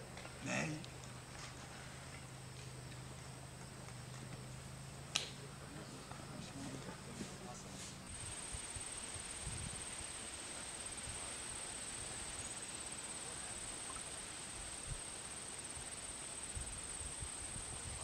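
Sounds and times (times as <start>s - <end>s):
soft hiss: 0.1s - 18.0s
low wind rumble: 8.0s - 11.4s.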